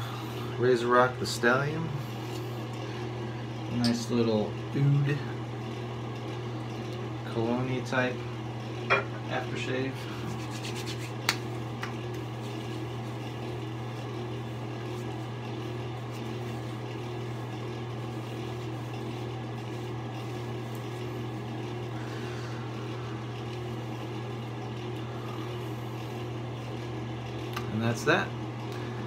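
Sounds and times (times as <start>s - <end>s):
fan humming: 0.0s - 29.0s
hands slapping skin: 10.3s - 12.2s.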